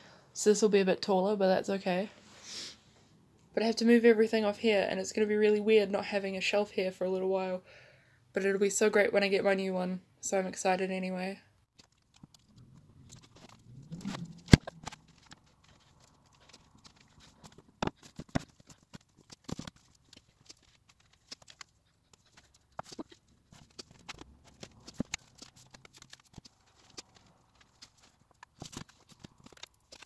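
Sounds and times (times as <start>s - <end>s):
albums and books clattering: 11.7s - 30.0s.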